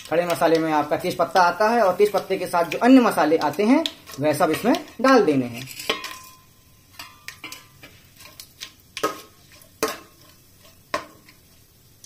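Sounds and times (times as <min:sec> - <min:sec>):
metal spoon clinking in pot: 0:01.3 - 0:08.4.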